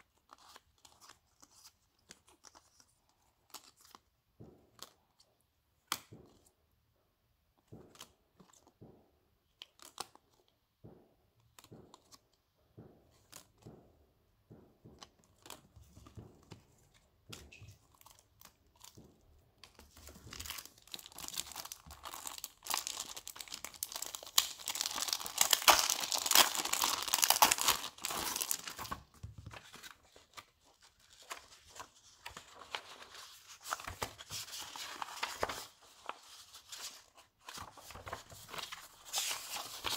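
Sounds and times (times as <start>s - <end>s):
plastic shrink wrap crinkling: 19.9s - 39.9s.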